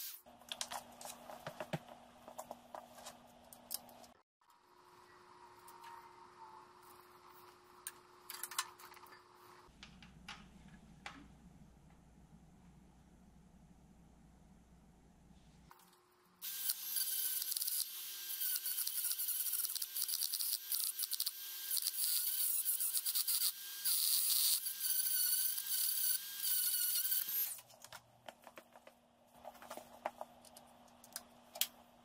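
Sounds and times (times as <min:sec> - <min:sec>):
rotary tool grinding metal: 0:16.4 - 0:27.6.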